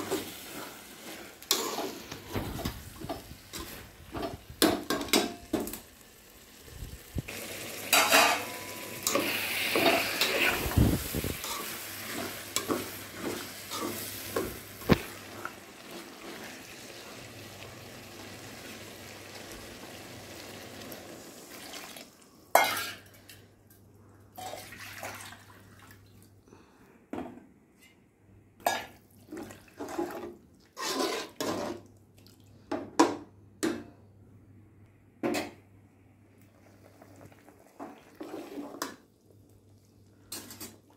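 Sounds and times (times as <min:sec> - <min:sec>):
metal spatula scraping pot: 0:00.0 - 0:02.4, 0:07.9 - 0:14.5, 0:30.8 - 0:31.8
ladle stirring in pot: 0:00.0 - 0:05.3, 0:07.9 - 0:16.7, 0:28.6 - 0:31.9
hiss and sizzle in hot pot: 0:00.0 - 0:23.0, 0:36.4 - 0:40.9.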